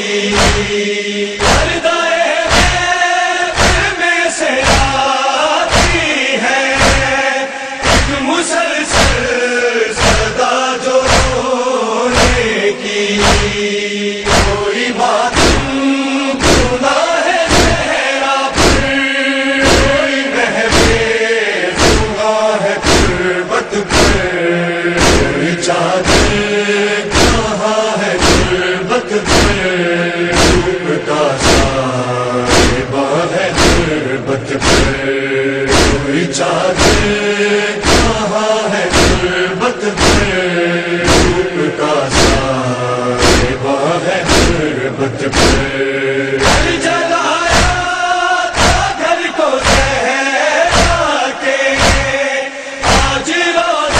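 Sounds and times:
men chanting in unison: 0.0s - 53.9s
rhythmic chest-beating: 0.1s - 50.0s, 50.6s - 53.9s
hands striking chests: 0.3s - 0.7s, 2.5s - 2.8s, 3.6s - 3.9s, 4.6s - 5.0s, 5.7s - 6.0s, 6.8s - 7.1s, 7.8s - 8.2s, 10.0s - 10.4s, 11.1s - 11.4s, 12.2s - 12.4s, 13.2s - 13.6s, 14.2s - 14.6s, 15.3s - 15.8s, 16.4s - 16.8s, 17.5s - 17.9s, 18.5s - 18.9s, 19.6s - 20.0s, 20.7s - 21.1s, 21.8s - 22.1s, 22.8s - 23.2s, 23.9s - 24.2s, 25.0s - 25.4s, 26.0s - 26.4s, 27.1s - 27.5s, 28.2s - 28.6s, 29.2s - 29.6s, 30.3s - 30.7s, 31.4s - 31.8s, 32.5s - 32.9s, 33.5s - 33.9s, 34.6s - 35.0s, 35.7s - 36.1s, 36.8s - 37.1s, 37.8s - 38.2s, 38.9s - 39.2s, 40.0s - 40.3s, 41.0s - 41.4s, 42.1s - 42.5s, 43.2s - 43.6s, 44.3s - 44.6s, 45.3s - 45.7s, 46.4s - 46.8s, 47.5s - 47.8s, 48.6s - 49.0s, 49.6s - 50.0s, 50.7s - 51.0s, 51.8s - 52.1s, 52.8s - 53.2s.

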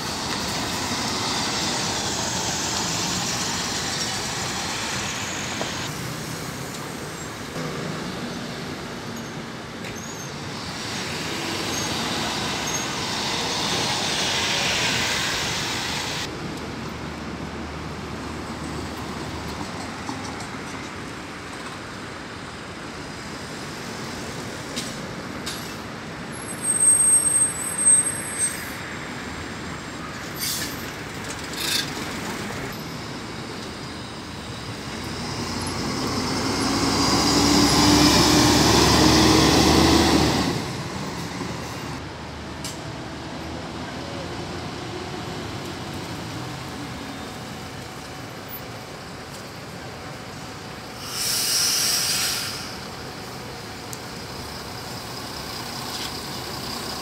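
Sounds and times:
air brakes hissing and squealing: 0.0s - 16.3s, 23.5s - 42.0s, 50.3s - 57.0s
bus engine: 0.0s - 57.0s
traffic noise: 0.0s - 57.0s.

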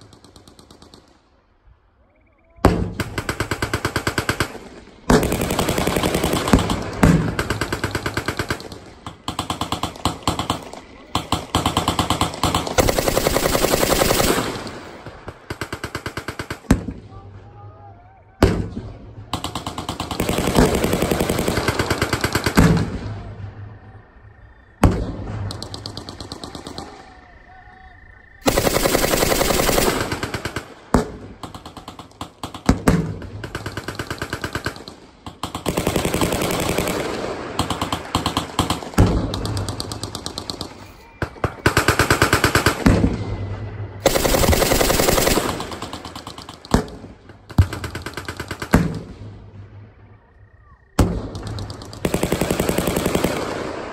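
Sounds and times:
machine guns firing bursts: 2.7s - 17.0s, 18.4s - 23.1s, 28.4s - 43.2s, 44.0s - 49.5s, 51.0s - 53.9s.

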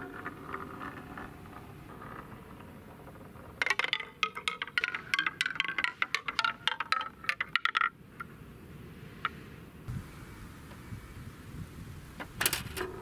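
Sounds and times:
ball clacking down wooden marble run: 0.0s - 8.0s.

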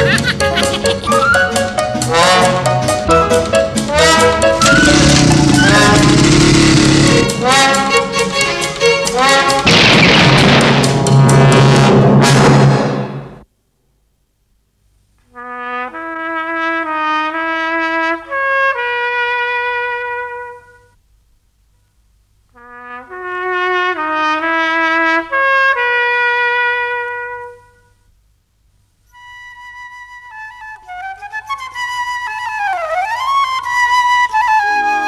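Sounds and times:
solo trumpet melody: 1.1s - 9.7s, 11.0s - 13.0s, 15.3s - 21.0s, 22.5s - 28.0s, 29.1s - 35.0s
high held wind note: 1.2s - 8.1s.

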